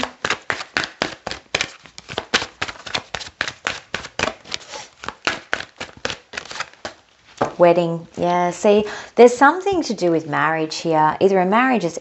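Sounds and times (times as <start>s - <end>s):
cards being shuffled: 0.0s - 7.6s.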